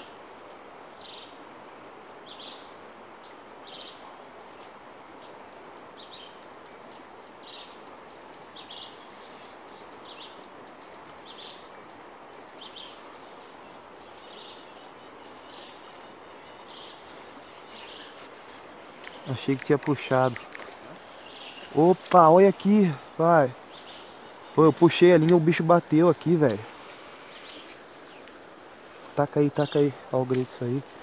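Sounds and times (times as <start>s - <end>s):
outdoor ambience hiss: 0.0s - 31.0s
bird chirping: 2.3s - 31.0s
faint high ticking: 7.3s - 30.9s.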